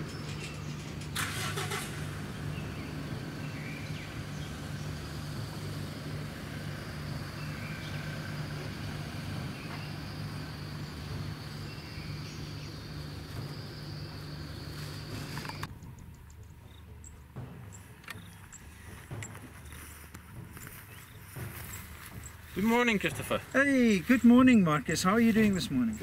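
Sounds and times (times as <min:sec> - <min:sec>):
steady low hum: 0:00.0 - 0:26.0
high insect drone: 0:01.3 - 0:15.7
bird chirps: 0:07.0 - 0:22.6.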